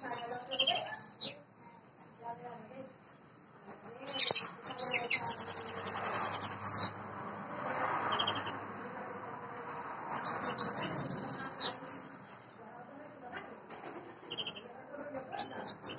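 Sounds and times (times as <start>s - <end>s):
bird trilling and chirping: 0.0s - 2.2s, 3.2s - 7.0s, 7.6s - 8.8s, 9.8s - 12.6s, 13.8s - 15.9s.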